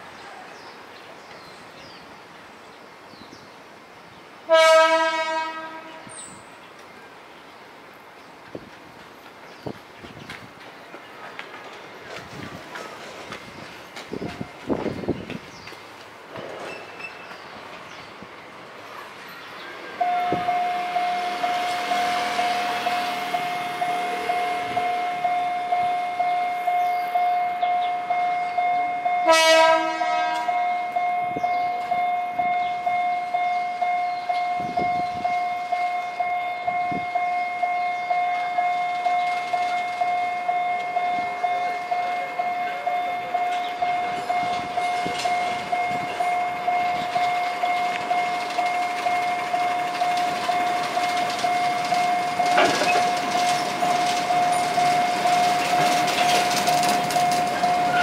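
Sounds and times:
locomotive horn blast: 0:04.5 - 0:06.2, 0:20.0 - 0:26.7, 0:29.0 - 0:31.4
crossing warning alarm: 0:04.5 - 0:06.4, 0:19.3 - 0:58.0.

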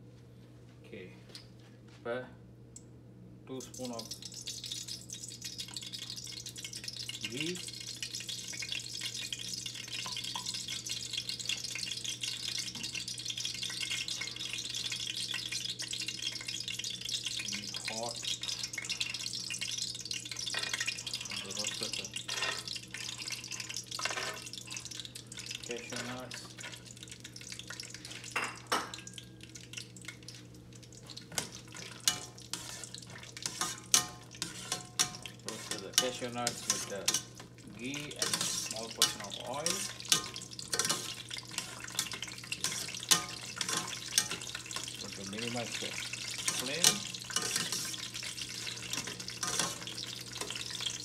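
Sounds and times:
low steady hum: 0:00.0 - 0:51.0
ghee sizzling and crackling: 0:03.5 - 0:51.0
spatula scraping a pan: 0:22.2 - 0:24.8, 0:31.3 - 0:37.4, 0:38.0 - 0:45.0, 0:45.9 - 0:51.0.

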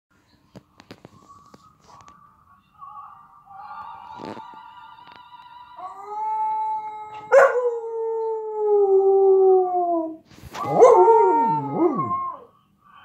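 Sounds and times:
dog howling: 0:05.8 - 0:12.5
recorded dog howl from laptop: 0:05.8 - 0:12.5.

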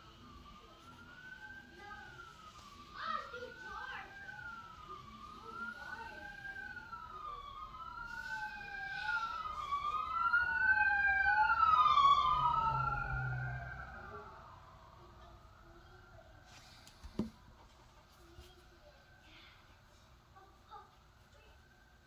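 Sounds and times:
second siren wail: 0:00.0 - 0:16.5
emergency vehicle siren wailing: 0:00.0 - 0:19.9.

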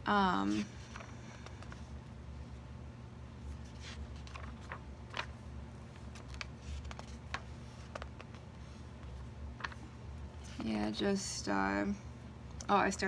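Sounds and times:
pages turning: 0:00.5 - 0:02.0, 0:03.4 - 0:11.0.

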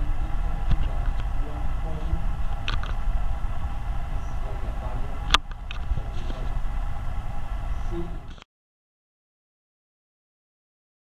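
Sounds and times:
low room rumble and hum: 0:00.0 - 0:08.5.

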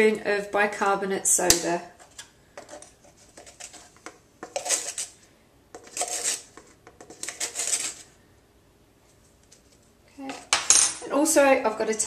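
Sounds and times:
metal spoon scraping powder: 0:02.0 - 0:05.2, 0:05.8 - 0:08.1.

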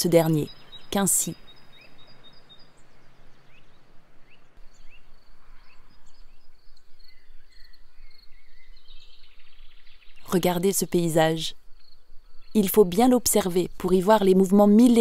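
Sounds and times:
bird chirps: 0:00.0 - 0:13.0
insects trilling: 0:04.6 - 0:09.0.

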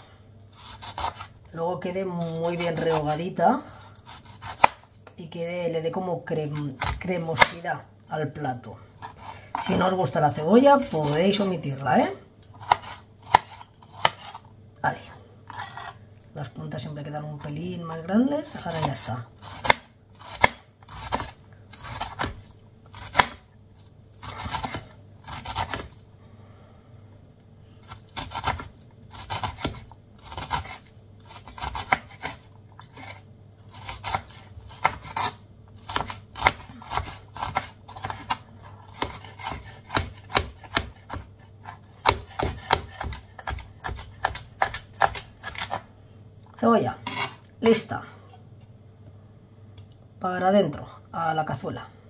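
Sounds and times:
knife scraping cutting board: 0:00.5 - 0:01.4, 0:02.1 - 0:04.8, 0:12.6 - 0:14.5, 0:15.4 - 0:16.1, 0:27.9 - 0:45.9, 0:47.0 - 0:47.5
knife chopping on cutting board: 0:00.6 - 0:01.3, 0:04.1 - 0:04.8, 0:12.6 - 0:14.4, 0:18.5 - 0:23.5, 0:24.2 - 0:25.9, 0:27.9 - 0:45.8.

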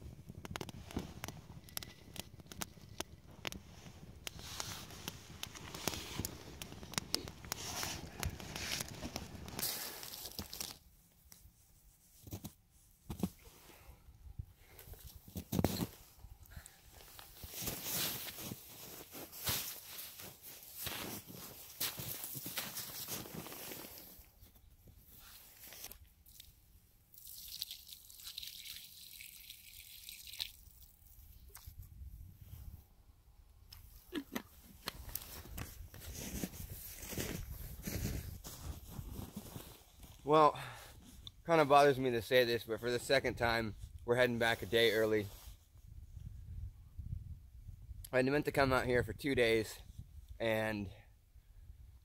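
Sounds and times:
campfire crackling and popping: 0:00.0 - 0:10.8
hand crunching snow: 0:00.4 - 0:10.8, 0:17.0 - 0:24.3, 0:34.1 - 0:40.2
water pouring into snow: 0:00.5 - 0:10.8, 0:27.1 - 0:31.3.

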